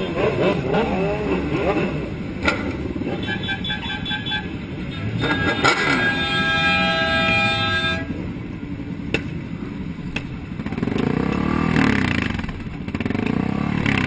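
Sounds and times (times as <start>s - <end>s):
motorcycle engines running: 0.0s - 14.0s
long horn blast: 3.1s - 8.2s
vehicle horn beeping: 3.1s - 8.2s.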